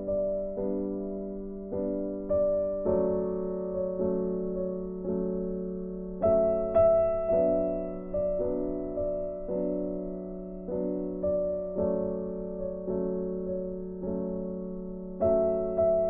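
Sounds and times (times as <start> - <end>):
keyboard chords: 0.0 - 16.0.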